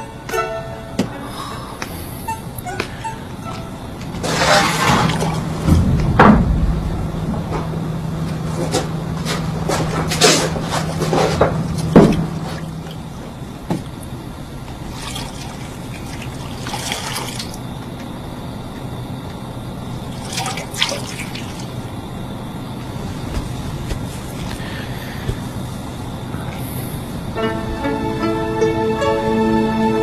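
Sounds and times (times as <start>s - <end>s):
steady low hum: 0.0s - 30.0s
water splashing in a basin: 4.2s - 5.8s, 14.8s - 17.6s, 20.0s - 21.8s.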